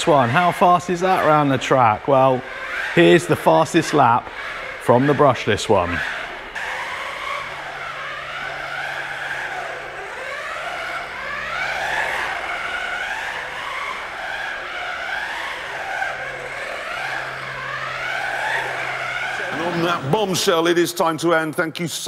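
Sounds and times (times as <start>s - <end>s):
rc car electric motor whining: 0.0s - 21.2s
tyres skidding: 0.0s - 21.5s.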